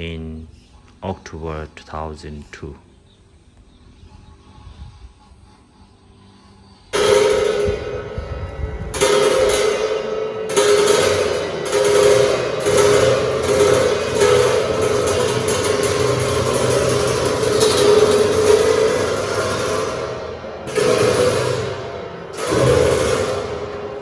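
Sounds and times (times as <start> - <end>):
cymbal crashes: 6.9 - 24.0
drum strokes: 7.0 - 24.0.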